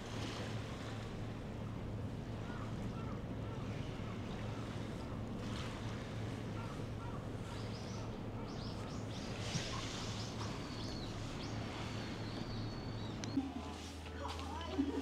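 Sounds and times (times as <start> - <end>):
steady low hum: 0.0 - 14.2
small birds chirping: 7.0 - 13.4.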